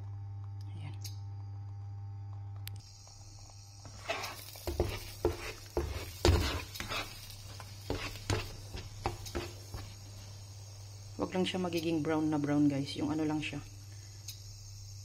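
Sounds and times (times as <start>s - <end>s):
eggs sizzling: 2.8s - 15.0s
spatula scraping a wok: 3.8s - 10.4s.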